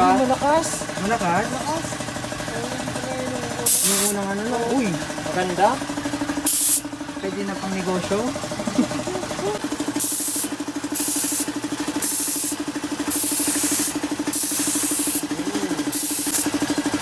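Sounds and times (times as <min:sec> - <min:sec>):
pulsing motor hum: 0:00.0 - 0:17.0
spray gun hissing bursts: 0:03.6 - 0:04.2, 0:06.4 - 0:06.8, 0:10.0 - 0:16.5.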